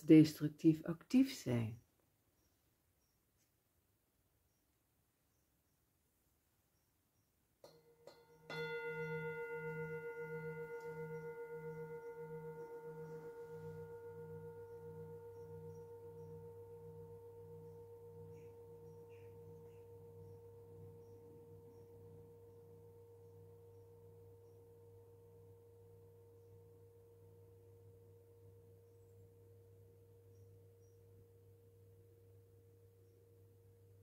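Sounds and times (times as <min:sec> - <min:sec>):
metal singing bowl ringing: 0:07.6 - 0:26.8
low wavering throb: 0:08.2 - 0:28.0.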